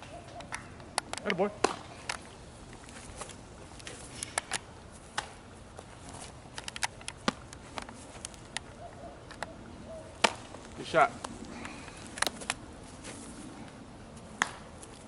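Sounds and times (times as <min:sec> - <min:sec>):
sharp clicks and ticks: 0:00.0 - 0:01.4, 0:06.6 - 0:08.7.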